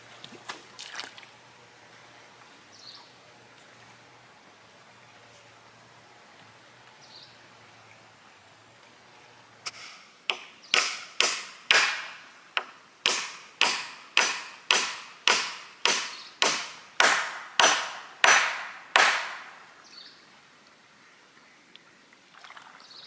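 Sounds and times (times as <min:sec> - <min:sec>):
blade chopping wood: 0:09.7 - 0:19.5.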